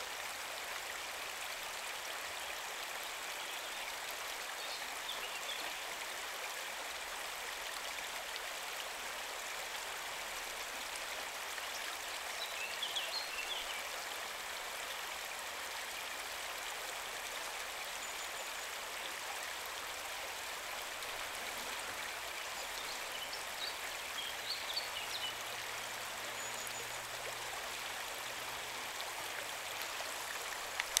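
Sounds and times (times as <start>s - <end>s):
river rushing over gravel: 29.0s - 31.0s.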